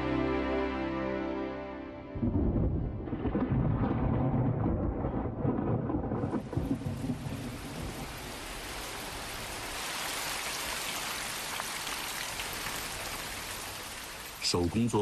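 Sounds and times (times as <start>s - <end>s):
thunder rumble: 2.2s - 9.1s
heavy rain on pavement: 2.9s - 15.0s.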